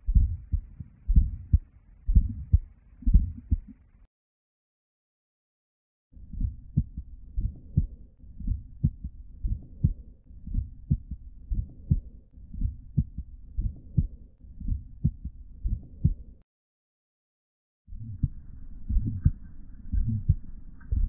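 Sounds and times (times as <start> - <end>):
heartbeat thuds: 0.0 - 3.8, 6.3 - 16.3, 18.0 - 21.0.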